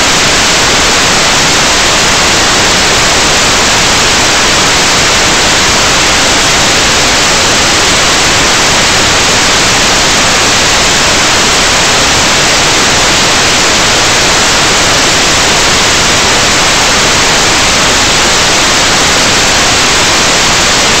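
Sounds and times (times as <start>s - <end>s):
video receiver static hiss: 0.0s - 21.0s.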